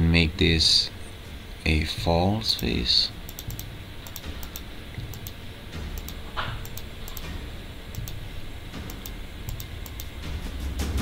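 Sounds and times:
steady low hum: 0:00.0 - 0:11.0
mouse and keyboard clicks: 0:03.3 - 0:05.4.

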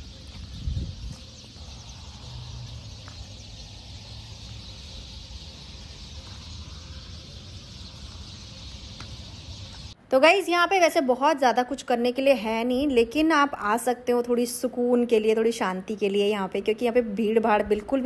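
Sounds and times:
birds calling and chirping: 0:00.0 - 0:10.0.

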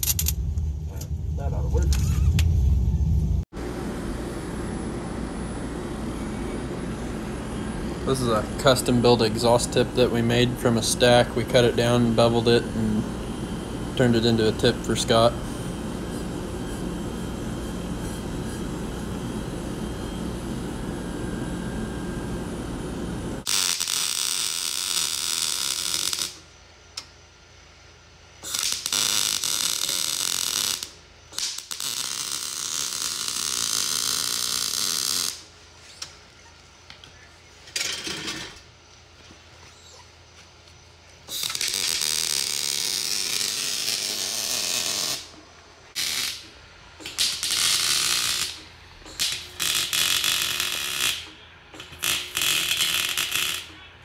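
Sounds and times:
welder hissing: 0:28.4 - 0:36.1, 0:41.3 - 0:53.8
angle grinder on metal: 0:41.3 - 0:45.3.

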